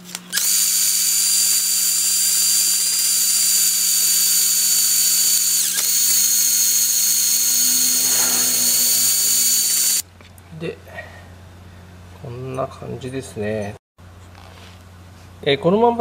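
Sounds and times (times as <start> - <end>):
impact driver whining: 0.0 - 10.0.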